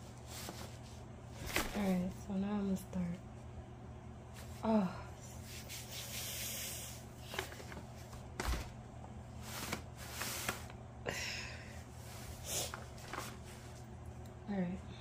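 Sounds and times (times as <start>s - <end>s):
handling rustles and rubs: 0.0s - 2.2s, 5.4s - 10.8s, 12.0s - 13.9s.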